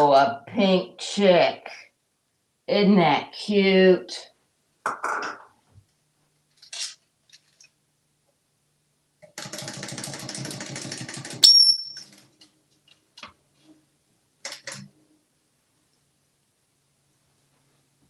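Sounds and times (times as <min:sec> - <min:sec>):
sharp high squeak: 0:11.4 - 0:12.1.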